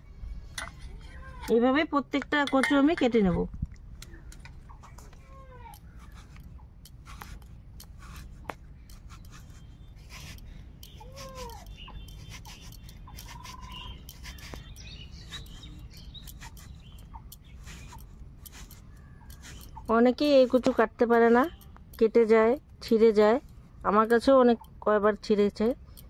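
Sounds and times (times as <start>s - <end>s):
low steady rumble: 0.0s - 26.0s.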